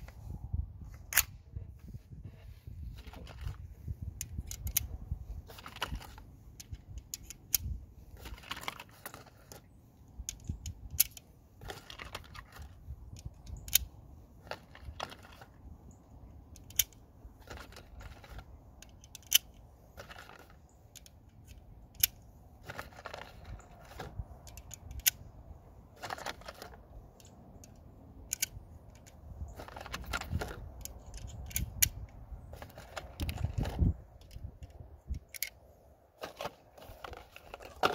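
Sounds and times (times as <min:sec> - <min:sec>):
cartridges clicking into magazine: 0:04.2 - 0:04.9, 0:05.6 - 0:09.6, 0:10.2 - 0:15.5, 0:16.5 - 0:25.3, 0:26.1 - 0:33.5, 0:34.2 - 0:35.6
scraping and rustling: 0:05.2 - 0:06.8, 0:08.0 - 0:09.8, 0:19.8 - 0:21.5, 0:22.6 - 0:24.8, 0:25.9 - 0:27.4, 0:29.0 - 0:31.7, 0:32.4 - 0:35.5, 0:36.2 - 0:37.9.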